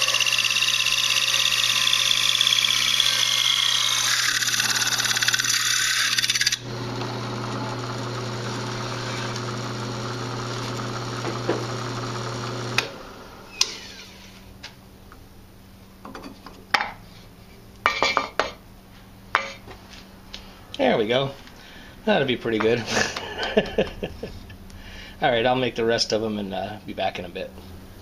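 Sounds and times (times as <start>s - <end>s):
hole saw screeching through wood: 0.0s - 6.7s, 7.5s - 10.0s, 13.4s - 14.5s
drill press humming: 0.0s - 14.6s.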